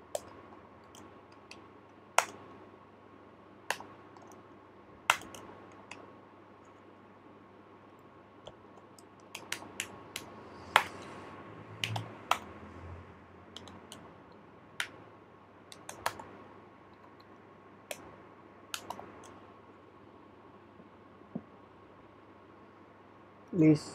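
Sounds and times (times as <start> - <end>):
computer keyboard keystrokes: 0.0 - 1.6, 2.2 - 2.4, 3.7 - 4.4, 5.1 - 6.0, 8.4 - 11.1, 11.8 - 12.5, 13.5 - 14.1, 15.7 - 16.3, 18.7 - 19.4.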